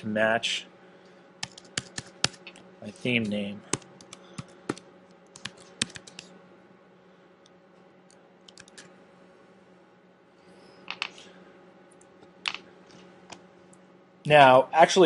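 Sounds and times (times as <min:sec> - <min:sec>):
typing on computer keyboard: 0:05.4 - 0:06.3, 0:08.5 - 0:08.8.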